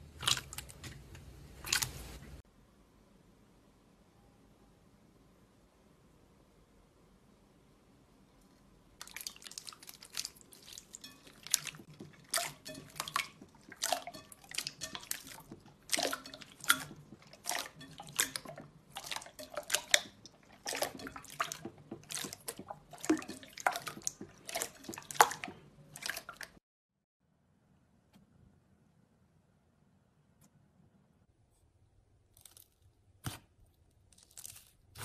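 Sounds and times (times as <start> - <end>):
slime squelching and popping: 9.0 - 26.4.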